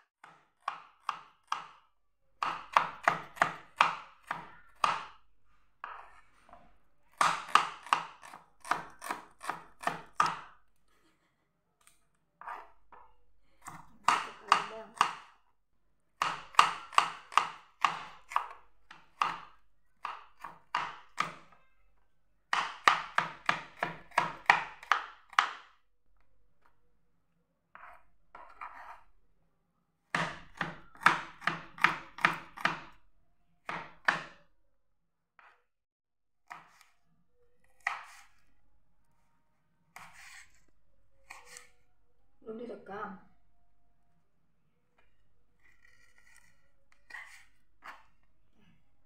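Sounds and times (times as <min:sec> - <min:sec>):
knife chopping on plastic board: 0:00.2 - 0:05.2, 0:07.1 - 0:10.6, 0:12.4 - 0:15.4, 0:16.2 - 0:21.6, 0:22.5 - 0:25.8, 0:27.7 - 0:29.0, 0:30.1 - 0:33.0, 0:33.6 - 0:34.4, 0:36.4 - 0:36.9, 0:37.7 - 0:38.4, 0:40.0 - 0:40.6, 0:41.2 - 0:41.7, 0:45.6 - 0:48.2.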